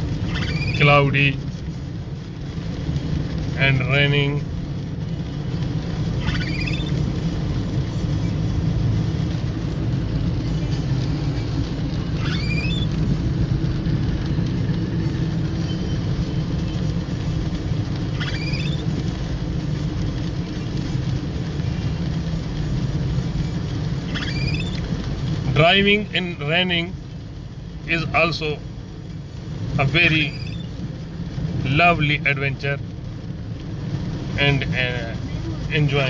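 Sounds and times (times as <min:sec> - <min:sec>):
car driving on wet road: 0:00.0 - 0:36.0
short rising squeak: 0:00.3 - 0:00.8, 0:06.2 - 0:07.0, 0:12.2 - 0:13.0, 0:18.1 - 0:18.9, 0:24.1 - 0:24.8, 0:30.2 - 0:30.7.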